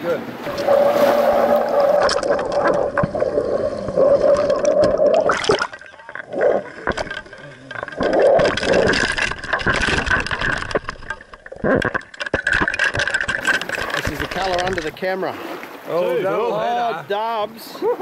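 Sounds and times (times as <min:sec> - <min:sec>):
water rushing and gurgling: 0:00.0 - 0:18.0
fish splashing at surface: 0:00.4 - 0:03.5.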